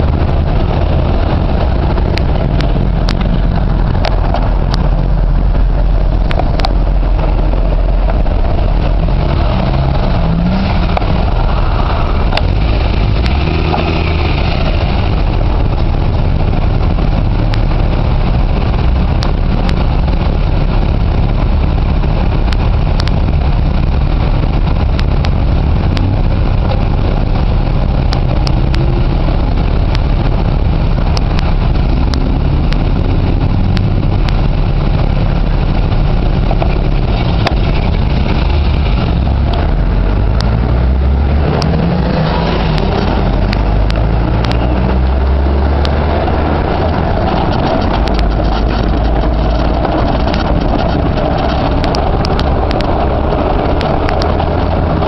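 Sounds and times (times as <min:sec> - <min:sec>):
car engines idling: 0:00.0 - 0:55.0
engine revving: 0:00.0 - 0:55.0.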